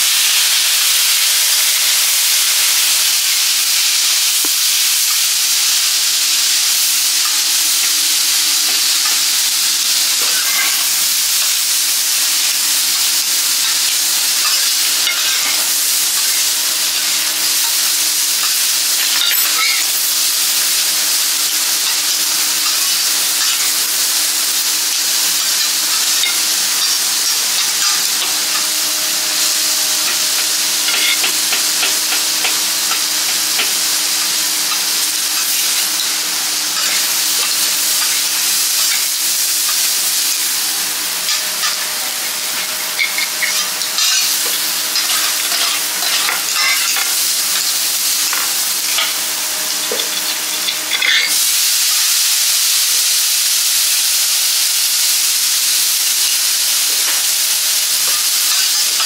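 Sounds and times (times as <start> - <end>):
food sizzling on griddle: 0.0 - 59.0
metal spatula clinking and scraping: 10.2 - 11.0, 13.6 - 17.8, 18.4 - 20.2, 25.6 - 28.8, 30.0 - 33.9, 34.6 - 39.1, 42.6 - 49.2, 58.0 - 59.0.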